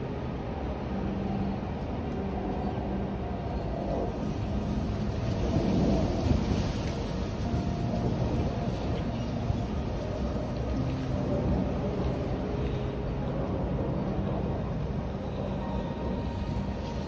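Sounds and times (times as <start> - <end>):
wind gusting through a tree: 0.0 - 17.0.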